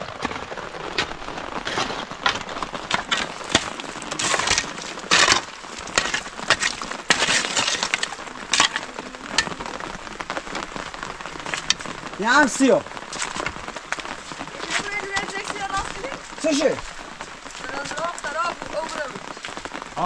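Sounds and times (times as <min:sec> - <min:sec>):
rain pattering: 0:00.0 - 0:20.0
shovel digging into stony mud: 0:01.7 - 0:08.9.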